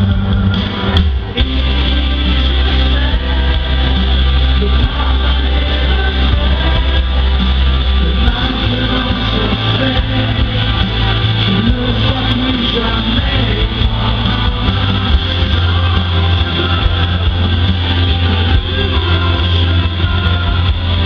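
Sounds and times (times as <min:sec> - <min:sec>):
live pop music: 0:00.0 - 0:21.0
man singing into microphone: 0:01.3 - 0:21.0.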